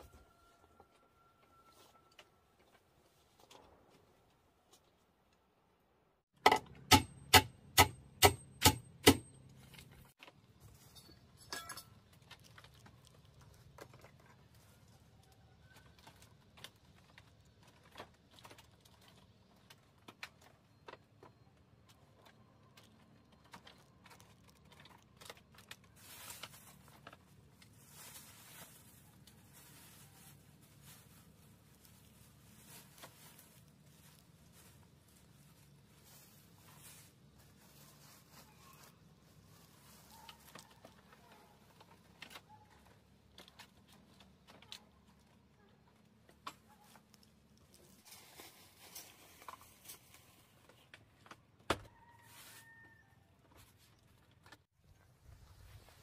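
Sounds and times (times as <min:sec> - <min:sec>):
plastic rustling: 0:22.1 - 0:45.4, 0:46.8 - 0:50.9.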